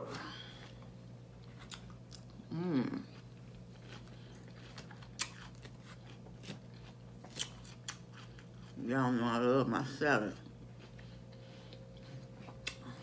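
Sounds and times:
chewing crisp lettuce: 0.5s - 9.5s
person humming: 2.5s - 3.1s.

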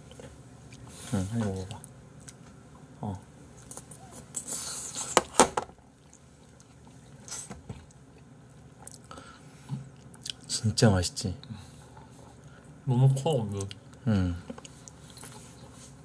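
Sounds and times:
person chewing food: 1.7s - 2.9s, 3.5s - 10.5s, 13.6s - 15.8s.

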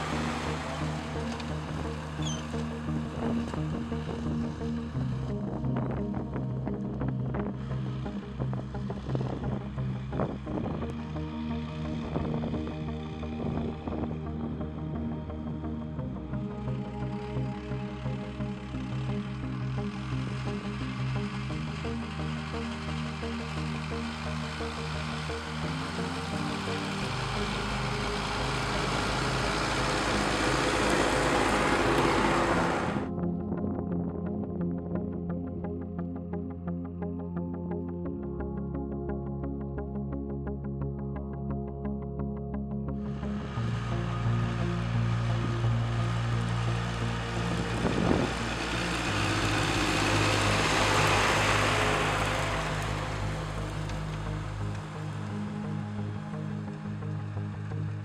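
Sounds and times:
implement working dry soil: 0.0s - 5.4s, 16.4s - 33.1s, 43.1s - 58.0s
tractor driving past: 0.0s - 5.4s, 16.4s - 33.1s, 43.1s - 57.4s.

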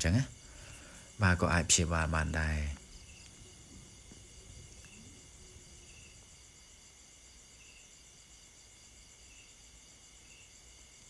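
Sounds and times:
crickets trilling: 0.0s - 11.0s
short insect chirps: 0.0s - 11.0s.

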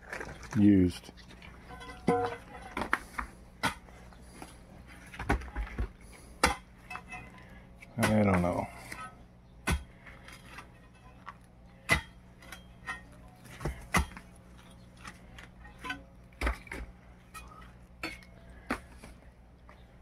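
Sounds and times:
tool clinking on concrete rubble: 1.7s - 3.0s.

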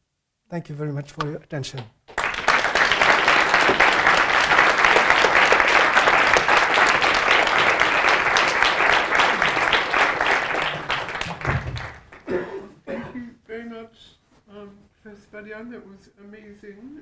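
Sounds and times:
audience clapping: 1.2s - 12.4s.

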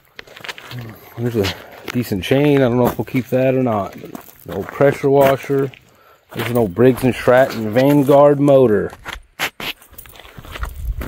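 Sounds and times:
footsteps crunching on dry leaves: 0.1s - 8.4s.

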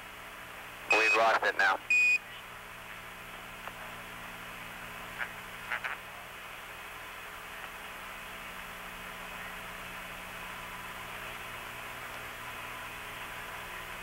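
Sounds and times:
radio static hiss: 0.9s - 2.6s, 4.8s - 6.5s.

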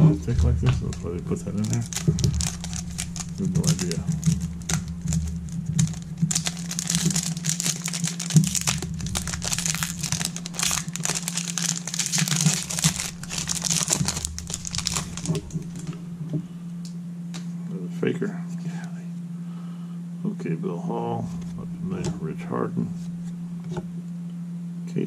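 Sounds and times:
foil wrapper crinkling: 0.5s - 16.0s.

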